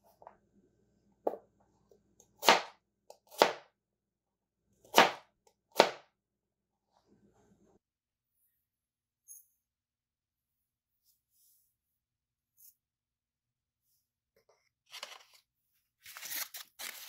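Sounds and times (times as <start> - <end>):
knife chopping on plastic board: 2.2 - 3.7, 4.8 - 6.1.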